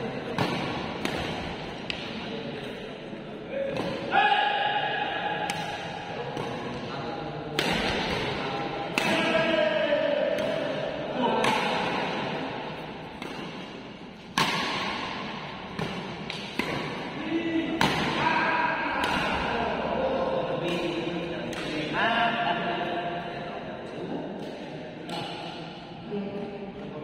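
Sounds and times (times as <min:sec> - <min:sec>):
badminton racket smacking shuttlecock: 0:15.8 - 0:17.1.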